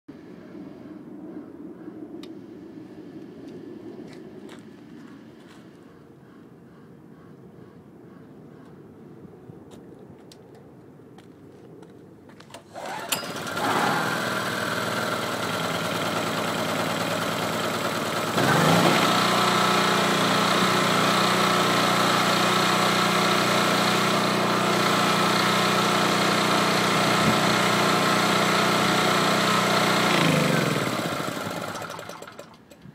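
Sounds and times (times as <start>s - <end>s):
generator engine running: 12.5s - 32.9s.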